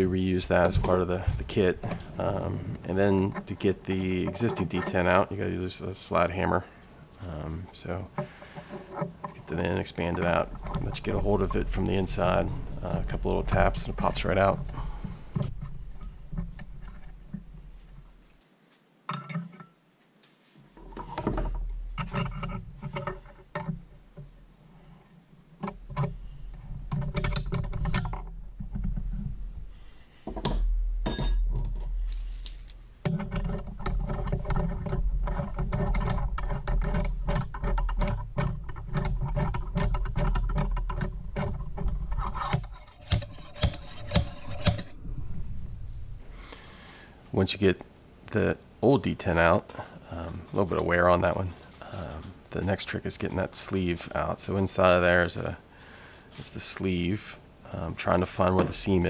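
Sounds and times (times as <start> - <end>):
metal tools clicking and scraping: 30.3 - 45.0.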